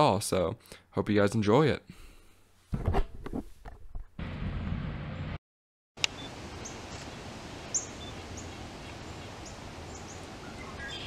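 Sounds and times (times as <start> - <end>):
outdoor background hiss: 6.0 - 11.0
songbird chirps: 6.0 - 11.0.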